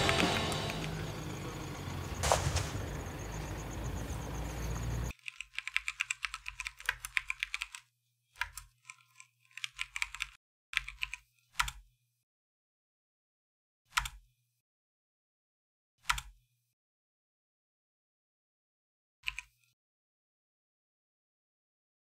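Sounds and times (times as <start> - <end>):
sharp hit: 2.1 - 3.3
typing on laptop keyboard: 5.1 - 11.8.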